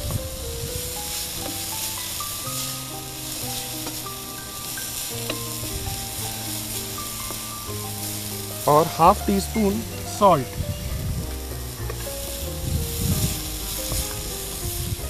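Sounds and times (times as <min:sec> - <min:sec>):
soft melodic background music: 0:00.0 - 0:15.0
vegetables sizzling in oil: 0:00.0 - 0:15.0
wooden spatula stirring: 0:01.0 - 0:10.5.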